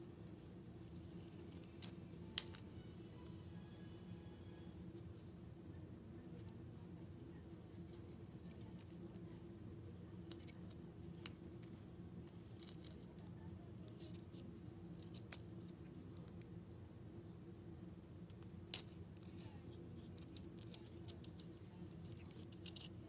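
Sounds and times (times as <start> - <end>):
pine cone scales clicking: 1.4 - 3.4.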